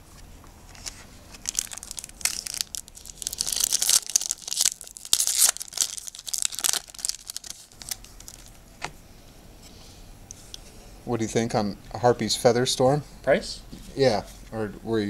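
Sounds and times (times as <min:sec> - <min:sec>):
foil pack crinkling and ripping: 0:00.8 - 0:08.6.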